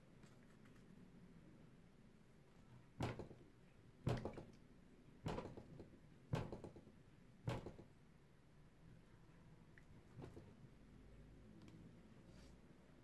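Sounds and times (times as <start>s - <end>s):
knocks on plastic battery case: 4.1s - 4.5s, 7.5s - 7.9s.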